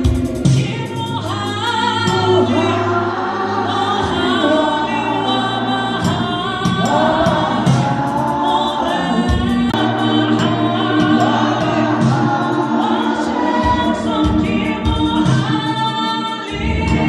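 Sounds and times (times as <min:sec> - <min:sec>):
gospel choir singing: 0:00.0 - 0:17.0
low accompaniment: 0:02.0 - 0:15.6.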